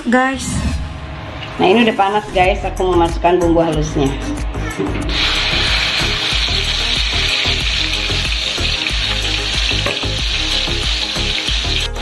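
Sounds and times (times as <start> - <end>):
paste sizzling in hot oil: 5.1 - 12.0.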